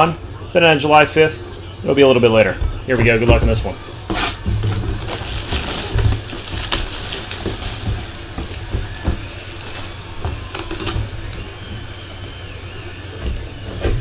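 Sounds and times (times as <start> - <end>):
plastic shrink wrap crinkling: 4.6 - 11.5.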